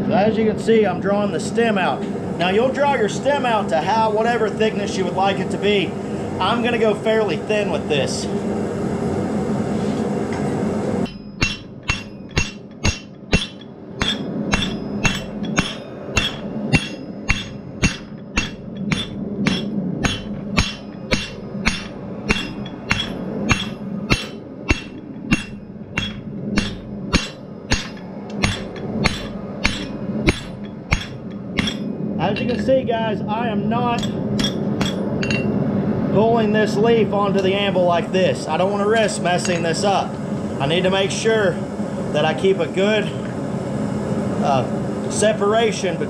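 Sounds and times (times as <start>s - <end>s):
low hum: 0.0s - 46.0s
hammer striking steel on anvil: 11.0s - 32.7s, 33.9s - 35.5s, 39.4s - 39.6s.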